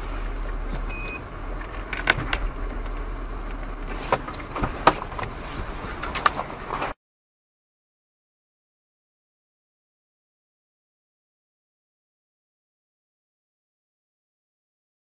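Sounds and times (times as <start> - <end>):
car cabin hum: 0.0 - 7.0
sharp clicks and knocks: 1.6 - 7.0.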